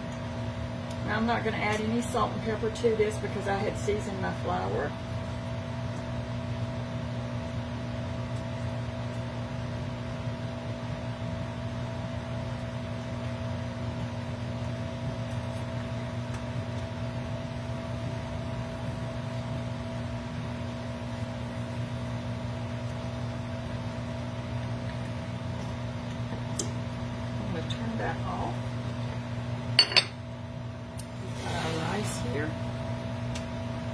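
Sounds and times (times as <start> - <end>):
vent fan humming: 0.0 - 33.9.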